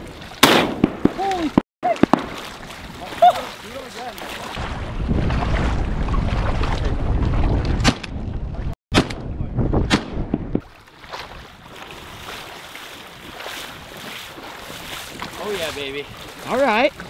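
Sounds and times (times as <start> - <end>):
water: 0.0 - 8.8, 10.4 - 17.0
shotgun shots: 0.4 - 1.2, 8.9 - 10.4
heavy wind buffeting microphone: 3.7 - 10.7, 11.3 - 17.0.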